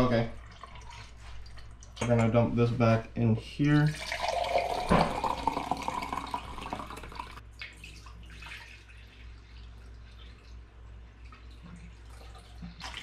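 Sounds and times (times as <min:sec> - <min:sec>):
thin stream of liquid pouring: 0:03.9 - 0:13.0.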